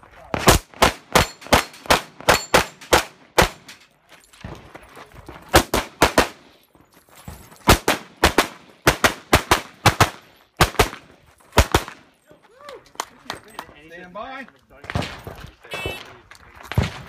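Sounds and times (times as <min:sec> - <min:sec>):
pistol shots: 0:00.3 - 0:03.7, 0:05.5 - 0:06.4, 0:07.7 - 0:11.0.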